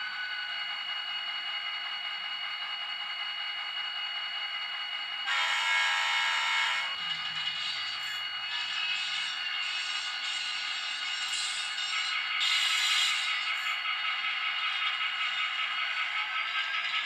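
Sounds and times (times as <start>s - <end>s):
model locomotive whine: 0.0s - 17.0s
locomotive horn blast: 5.3s - 7.0s.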